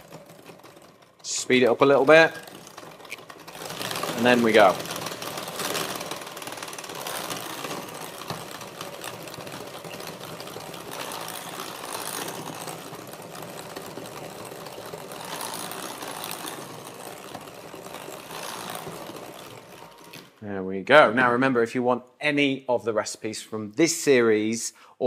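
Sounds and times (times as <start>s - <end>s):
electric hand mixer running: 0.0s - 20.4s.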